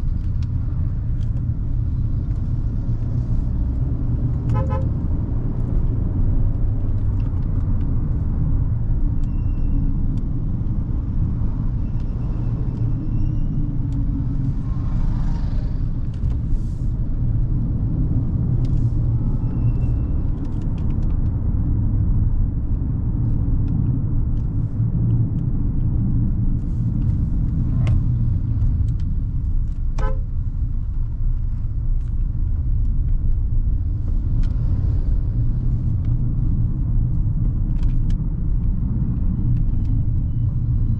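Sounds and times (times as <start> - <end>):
car engine rumble: 0.0 - 40.9
car horn beep: 4.5 - 4.9, 30.0 - 30.3.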